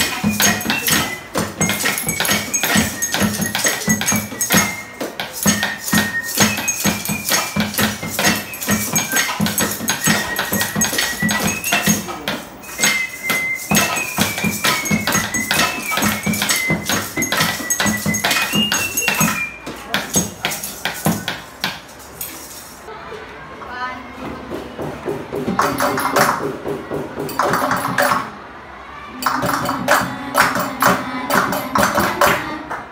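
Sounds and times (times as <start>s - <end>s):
thin high melody: 0.0s - 21.6s
metallic clinks and clatter: 0.0s - 22.9s.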